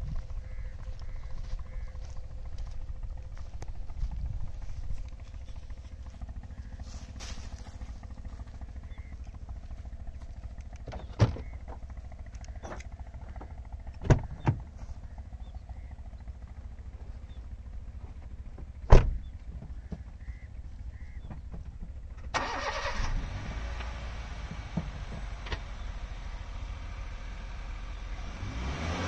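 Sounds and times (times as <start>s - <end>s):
low rumble: 0.0s - 22.3s
car doors shutting: 18.9s - 19.2s.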